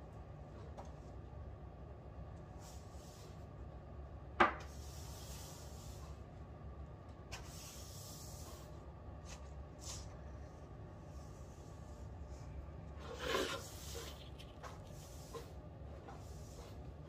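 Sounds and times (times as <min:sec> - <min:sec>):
steady low hum: 0:00.0 - 0:17.0
rubbing and rustling: 0:13.0 - 0:17.0.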